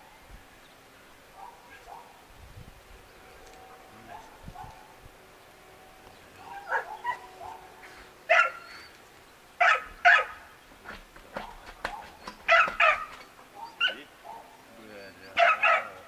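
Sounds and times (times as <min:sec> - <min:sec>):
dog barking: 0:01.4 - 0:02.1, 0:04.1 - 0:04.9, 0:06.4 - 0:07.7, 0:08.3 - 0:08.6, 0:09.6 - 0:10.4, 0:11.4 - 0:14.6, 0:15.4 - 0:16.0.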